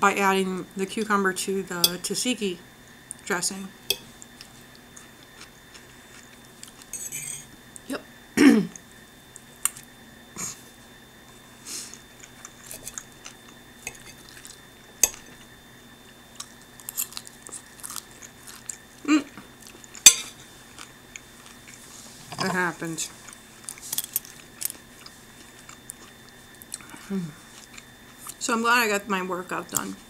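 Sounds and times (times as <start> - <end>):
chewing salad: 4.0 - 7.2, 11.3 - 15.6, 16.3 - 22.2, 23.0 - 28.4
person humming: 26.9 - 27.4.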